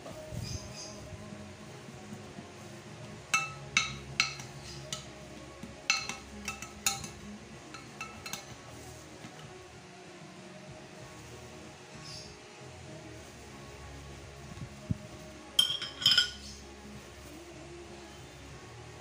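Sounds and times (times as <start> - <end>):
metal spoon clinking on ceramic dish: 3.3 - 5.1, 5.9 - 8.5, 15.6 - 16.6.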